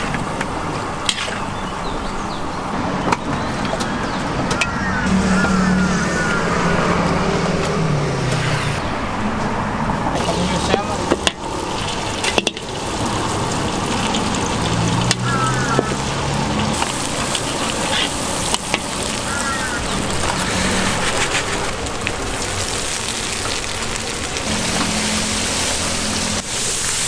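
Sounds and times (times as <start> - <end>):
curry paste sizzling in oil: 10.2 - 27.0.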